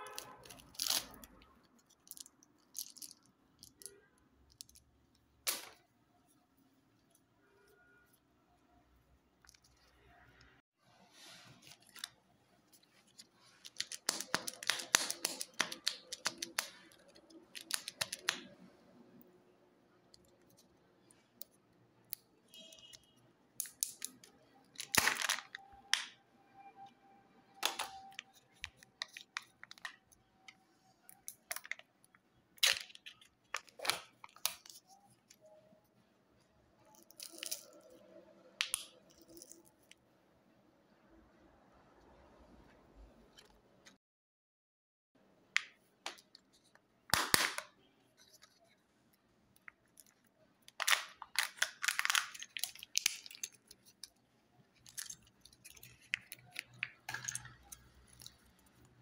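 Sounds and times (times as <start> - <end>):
plastic and foil crinkling: 0.0 - 4.0, 12.8 - 18.5, 27.6 - 30.2, 49.8 - 59.0
plastic clicks and snaps: 13.6 - 18.6, 38.6 - 40.0.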